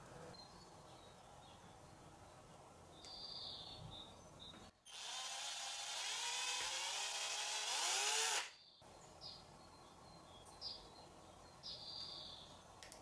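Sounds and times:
cordless drill whining: 0:04.9 - 0:08.5.

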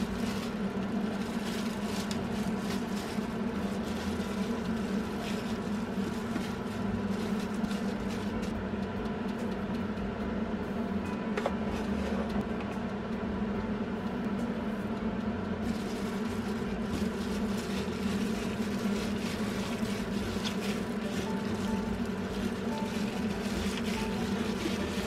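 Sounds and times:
meat squishing: 0:00.0 - 0:08.5, 0:15.6 - 0:25.0
plastic glove crinkling: 0:00.0 - 0:08.6, 0:15.6 - 0:25.0
steady low hum: 0:00.0 - 0:25.0.

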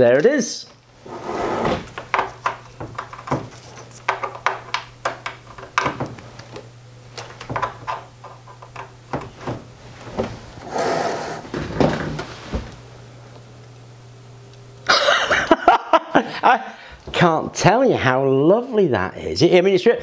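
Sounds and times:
steady low hum: 0:00.0 - 0:20.0
clicks and knocks of handling: 0:01.8 - 0:10.4.

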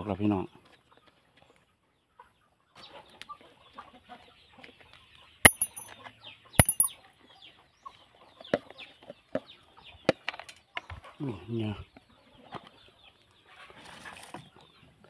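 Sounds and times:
screws clinking into ceramic mug: 0:05.5 - 0:05.9, 0:06.6 - 0:06.9.

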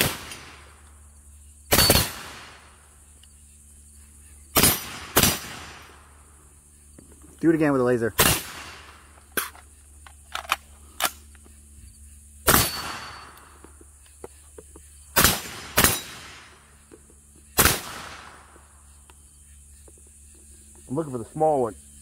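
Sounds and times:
rifle shots echoing: 0:00.0 - 0:00.8, 0:01.7 - 0:02.8, 0:04.5 - 0:06.2, 0:08.1 - 0:09.1, 0:12.4 - 0:13.5, 0:15.1 - 0:16.6, 0:17.6 - 0:18.6.

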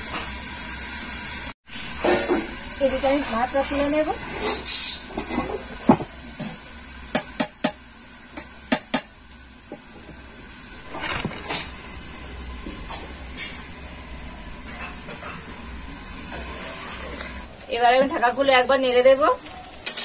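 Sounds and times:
metal pot and lid clanking: 0:02.0 - 0:02.5, 0:04.4 - 0:06.1, 0:14.6 - 0:15.6, 0:19.8 - 0:20.0.

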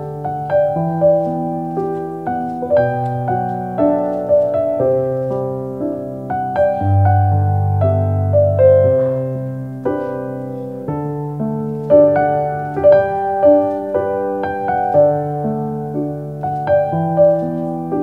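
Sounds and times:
slow gentle piano music: 0:00.0 - 0:18.0.

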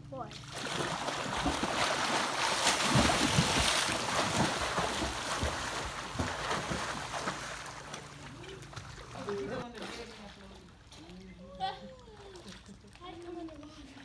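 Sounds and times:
swimmers splashing water: 0:00.4 - 0:11.2.

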